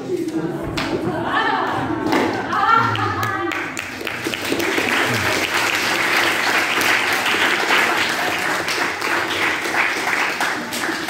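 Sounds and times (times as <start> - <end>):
audience clapping: 2.6 - 11.0.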